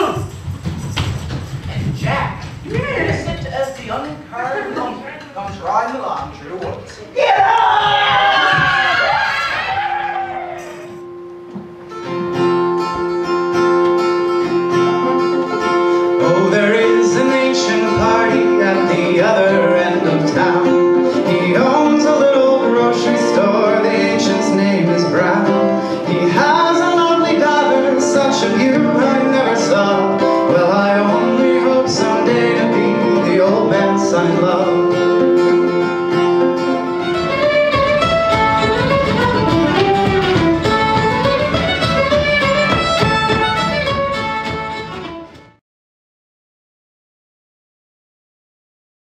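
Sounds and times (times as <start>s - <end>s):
drums: 0.0s - 4.3s, 5.2s - 14.1s, 37.3s - 45.6s
acoustic guitar: 0.0s - 45.6s
person singing: 14.8s - 35.5s
fiddle: 22.6s - 45.6s.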